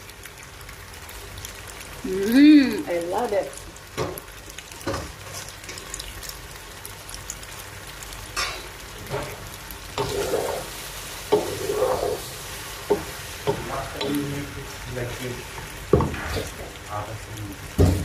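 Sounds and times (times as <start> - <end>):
frying sizzle: 0.0 - 18.0
wooden spoon scraping and knocking pot: 10.0 - 14.2.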